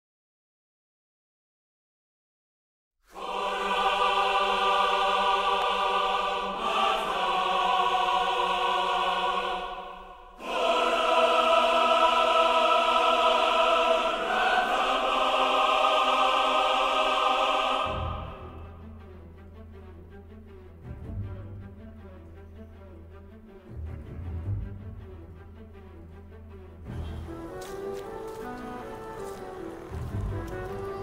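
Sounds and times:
choir singing held chords: 0:03.1 - 0:19.2.

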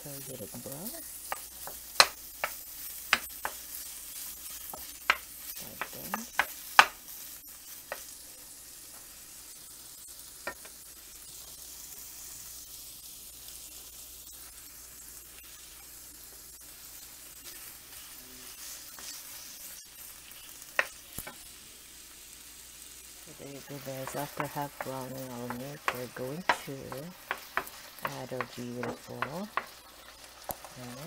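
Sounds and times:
meat sizzling in a frying pan: 0:00.0 - 0:31.0
wooden spoon knocking on pan: 0:01.3 - 0:03.6, 0:04.7 - 0:07.0, 0:07.9 - 0:08.1, 0:10.4 - 0:10.8, 0:23.6 - 0:29.8.

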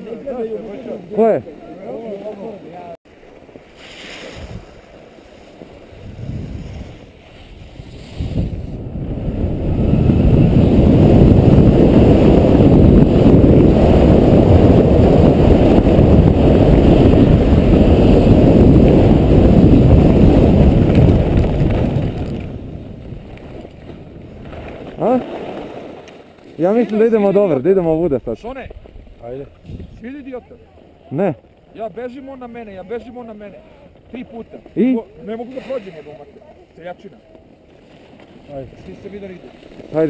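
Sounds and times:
wind roaring over microphone: 0:04.3 - 0:04.9, 0:05.8 - 0:25.6, 0:27.2 - 0:31.3.

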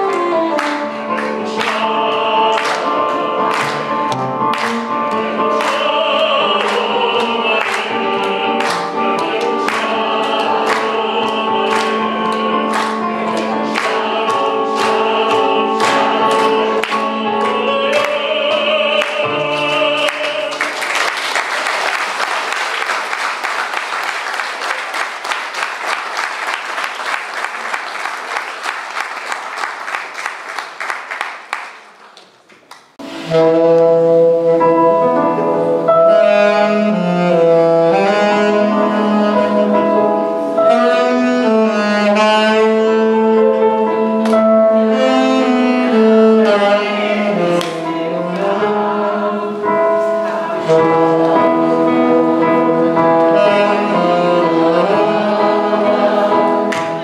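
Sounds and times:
audience clapping in time: 0:00.0 - 0:18.2, 0:19.0 - 0:33.0
song with singing and instruments: 0:00.0 - 0:21.1, 0:33.0 - 0:57.0
keyboard playing: 0:00.0 - 0:21.6, 0:33.0 - 0:57.0
applause: 0:02.6 - 0:02.8, 0:03.5 - 0:03.9, 0:04.5 - 0:04.8, 0:08.6 - 0:08.9, 0:11.7 - 0:11.9, 0:12.7 - 0:12.9, 0:19.6 - 0:33.0.

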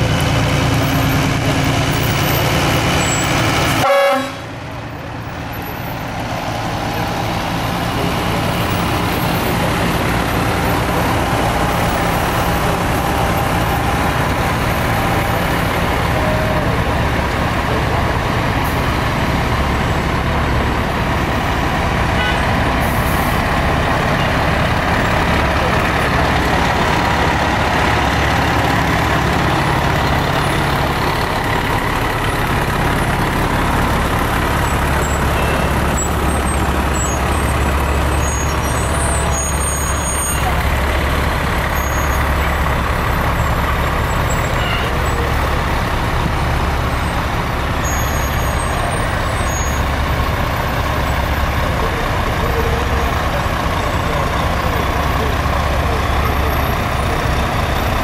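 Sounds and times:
fire truck diesel engines: 0:00.0 - 0:58.0.

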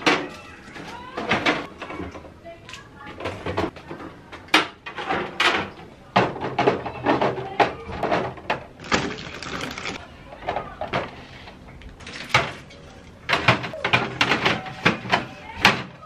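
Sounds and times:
cans and bottles clinking: 0:08.8 - 0:10.0.

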